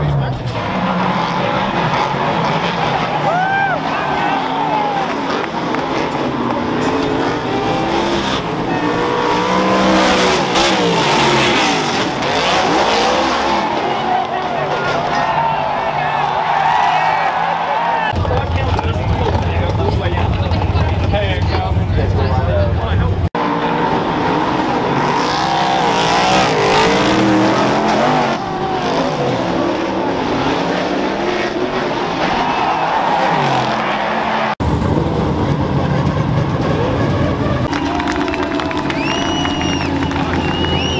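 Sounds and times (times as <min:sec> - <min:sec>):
race car engines revving: 0:00.0 - 0:40.9
race cars passing by: 0:00.0 - 0:40.9
single engine running deep: 0:34.6 - 0:40.9.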